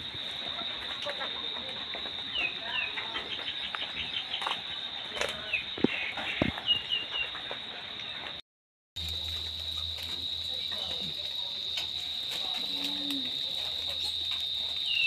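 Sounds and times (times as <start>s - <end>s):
high insect drone: 9.0s - 15.0s.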